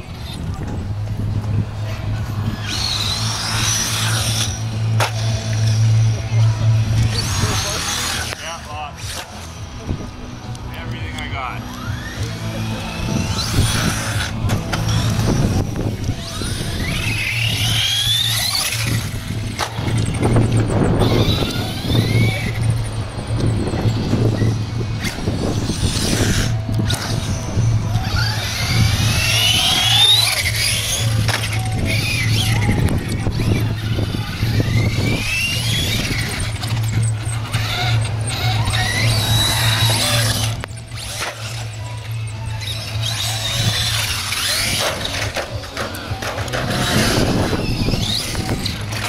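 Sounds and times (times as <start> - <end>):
rc truck motors whining: 0.0 - 49.0
tyres rumbling on concrete: 11.5 - 49.0.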